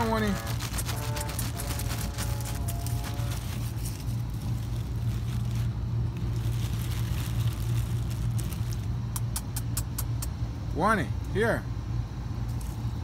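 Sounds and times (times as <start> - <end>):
motor humming: 0.0 - 6.4.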